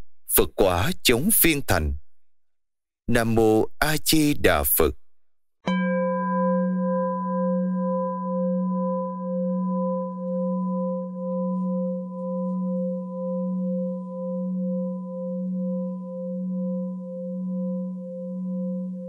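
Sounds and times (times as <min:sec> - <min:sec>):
singing bowl ringing: 0:05.7 - 0:19.0.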